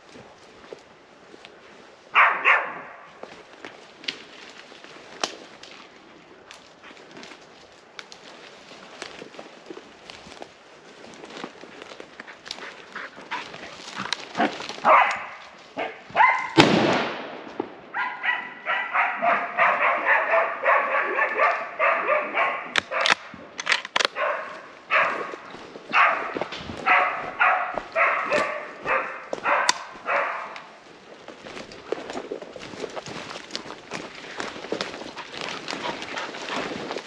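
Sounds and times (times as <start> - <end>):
rustle of brush: 0.0 - 17.2, 24.2 - 37.0
dog barking excited yelps: 2.2 - 3.0, 14.8 - 16.6, 18.0 - 23.1, 24.1 - 25.3, 25.9 - 30.6.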